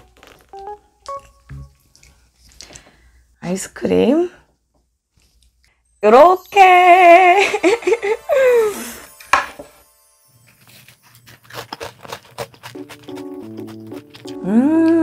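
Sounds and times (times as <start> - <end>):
light background music: 0.0 - 2.1, 5.7 - 15.0
crunching cookie bites: 0.0 - 2.8, 10.5 - 15.0.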